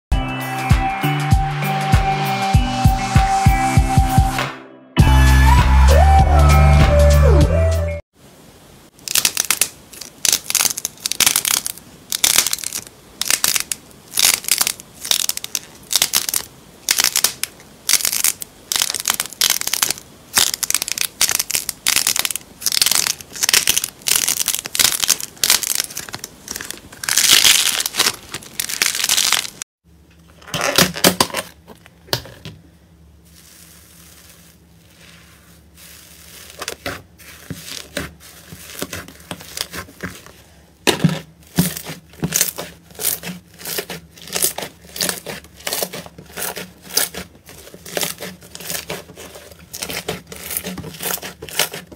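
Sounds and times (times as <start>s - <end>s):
slime crackling squelches: 9.0s - 29.6s, 33.2s - 51.9s.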